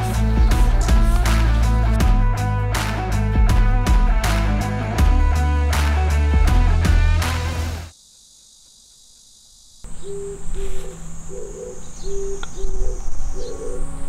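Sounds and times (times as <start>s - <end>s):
background music: 0.0s - 7.9s
high insect drone: 7.3s - 14.0s
low hooting call: 9.9s - 14.0s.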